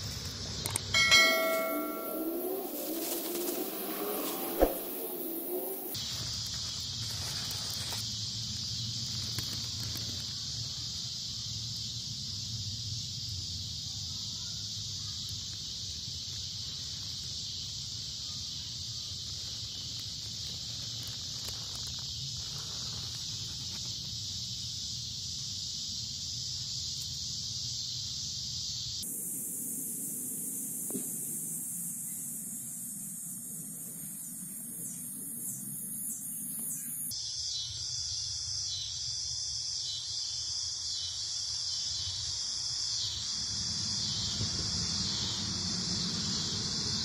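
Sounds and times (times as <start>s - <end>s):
night insects chorus: 0.0s - 47.0s.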